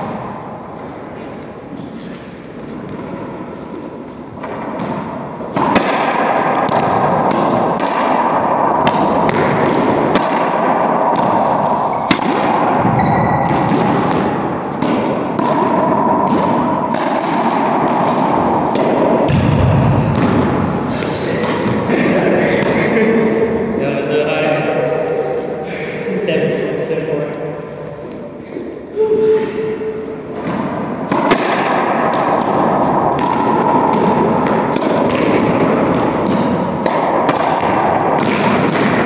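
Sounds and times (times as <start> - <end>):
loud steady rushing noise: 0.0 - 39.0
racquetball smacking court walls: 2.0 - 23.6, 30.3 - 39.0.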